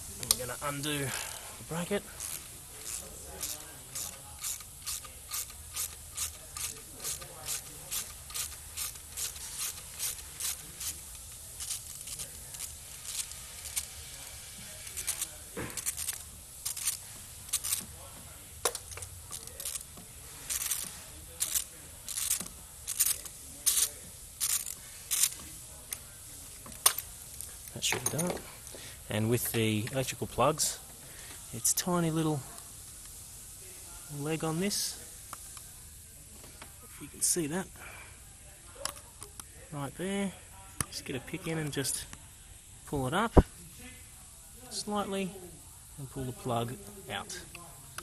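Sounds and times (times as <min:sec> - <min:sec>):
ratchet clicking: 0:02.2 - 0:17.9, 0:18.6 - 0:26.0.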